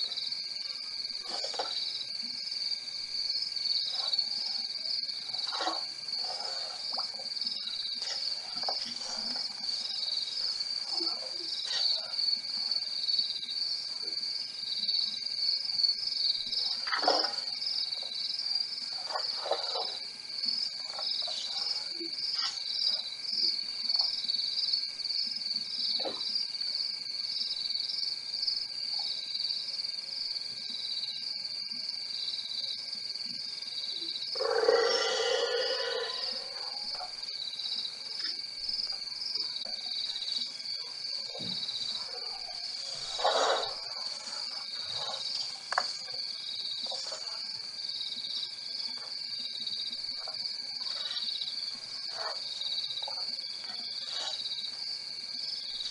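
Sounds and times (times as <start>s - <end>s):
crickets trilling: 0.0s - 55.9s
low insect drone: 0.0s - 55.9s.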